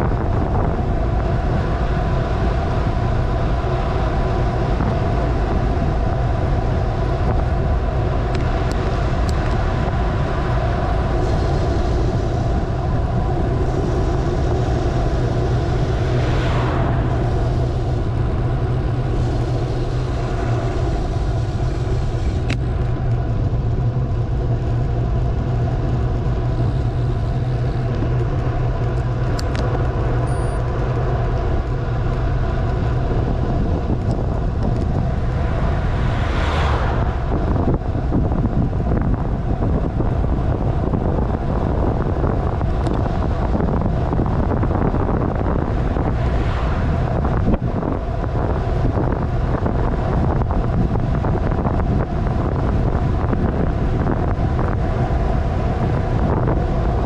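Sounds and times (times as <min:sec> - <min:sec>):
road rumble: 0:00.0 - 0:57.0
wind buffeting microphone: 0:00.0 - 0:57.0
whoosh: 0:33.9 - 0:39.2.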